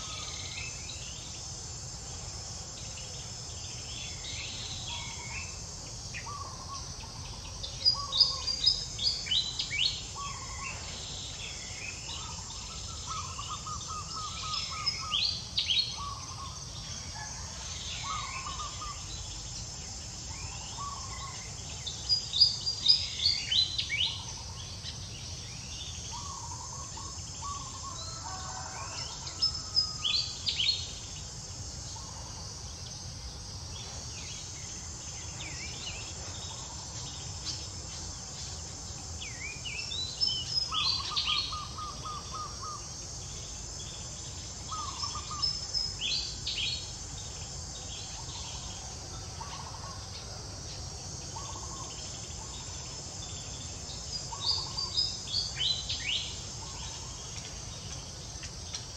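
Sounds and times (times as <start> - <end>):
high insect drone: 0.0 - 58.9.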